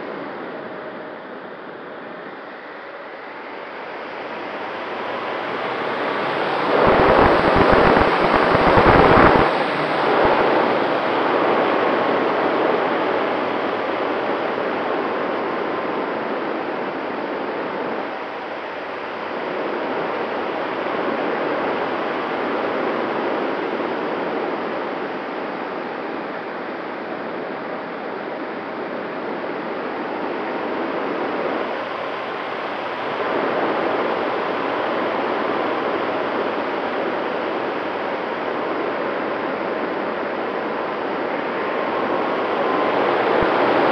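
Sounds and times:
faint steady whine: 0:00.0 - 0:43.9
rushing airflow: 0:03.8 - 0:11.8.

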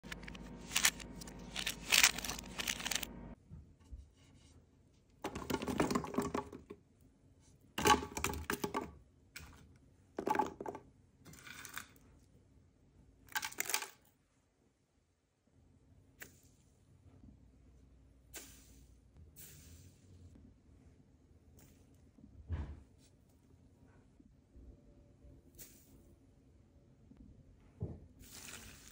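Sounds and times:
vegetables clattering into plastic jug: 0:00.0 - 0:03.0, 0:05.2 - 0:06.7.

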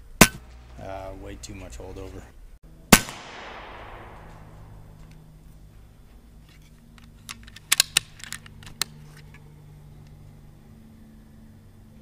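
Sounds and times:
air rifle shot echo: 0:02.9 - 0:05.0
rifle lever clicks: 0:07.0 - 0:09.4.

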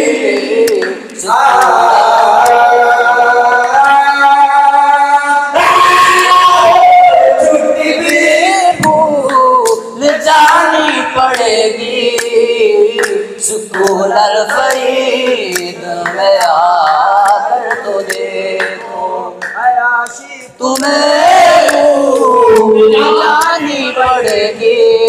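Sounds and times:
men singing unaccompanied: 0:00.0 - 0:25.0
hand claps: 0:00.1 - 0:02.8, 0:07.9 - 0:21.9, 0:22.5 - 0:24.8.

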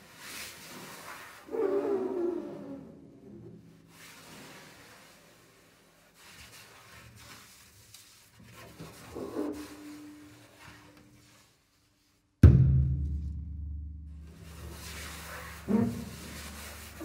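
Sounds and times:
loud low strike on double bass: 0:12.4 - 0:15.2
double bass extended techniques: 0:12.4 - 0:17.0.

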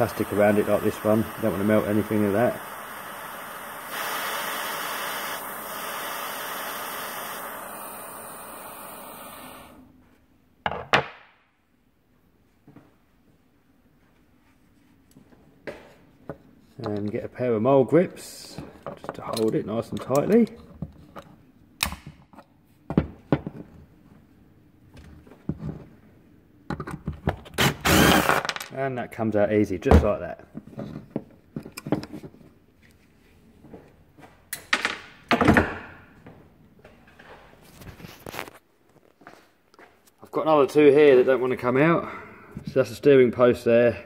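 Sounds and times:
torch flame hissing: 0:00.0 - 0:09.9.

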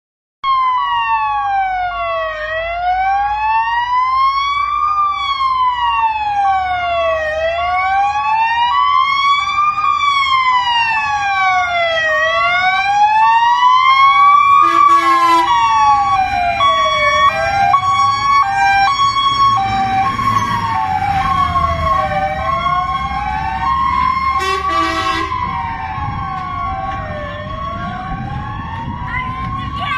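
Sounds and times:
siren wailing up and down: 0:00.4 - 0:29.9
two-tone siren: 0:00.4 - 0:29.9
diesel engines rumbling: 0:01.1 - 0:29.9
horn blasts: 0:14.6 - 0:15.6, 0:24.4 - 0:25.4.

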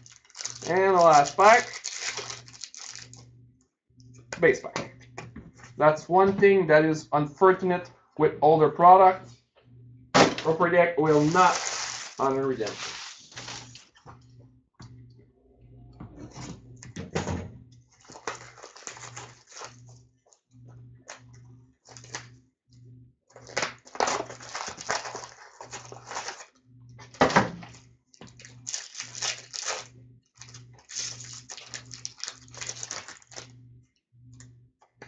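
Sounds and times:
foil packs crinkling and rustling: 0:00.0 - 0:03.2, 0:11.0 - 0:14.0, 0:17.9 - 0:19.8, 0:21.9 - 0:22.3, 0:23.3 - 0:26.5, 0:27.6 - 0:33.5
sharp packaging crackle: 0:00.0 - 0:03.2, 0:11.1 - 0:13.9, 0:18.0 - 0:19.8, 0:23.4 - 0:26.5, 0:28.3 - 0:33.5
low hum: 0:00.0 - 0:23.1.

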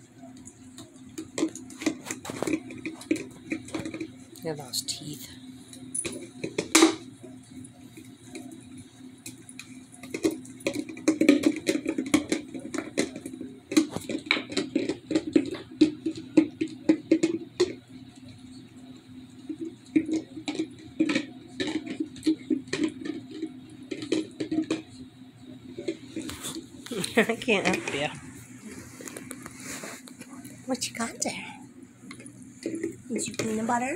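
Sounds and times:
dog licking plastic jar: 0:00.4 - 0:04.2, 0:09.2 - 0:18.3, 0:19.4 - 0:24.9.

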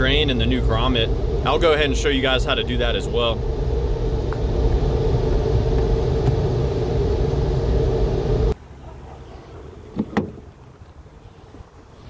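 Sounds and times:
constant hum: 0:00.0 - 0:12.0
low mechanical rumble: 0:00.0 - 0:12.0.

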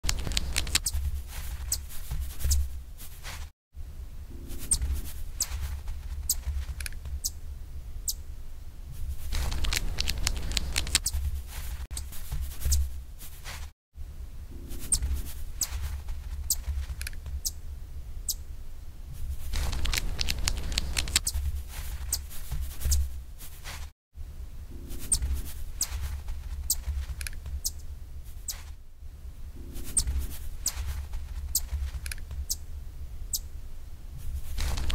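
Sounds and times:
chipmunk clicks and patter: 0:00.0 - 0:02.7, 0:04.6 - 0:07.4, 0:09.2 - 0:12.9, 0:14.9 - 0:17.6, 0:19.5 - 0:23.1, 0:25.0 - 0:27.8, 0:30.0 - 0:32.6.

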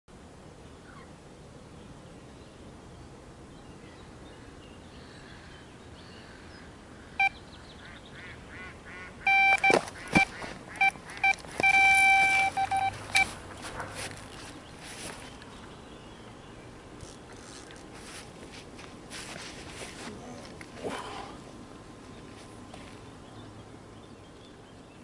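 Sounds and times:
electronic bite alarm beeping: 0:09.3 - 0:13.3.

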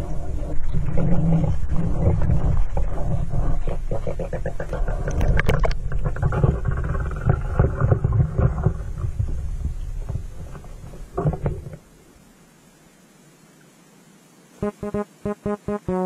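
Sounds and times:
underwater low rumble: 0:00.0 - 0:12.0.

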